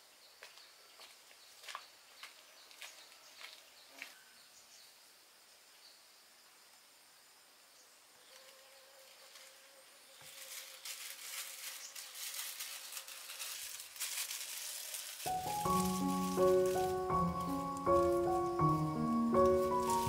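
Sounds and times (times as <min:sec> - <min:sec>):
faint insects: 0:00.0 - 0:20.0
plastic gloves crinkling: 0:10.2 - 0:20.0
music: 0:15.3 - 0:20.0.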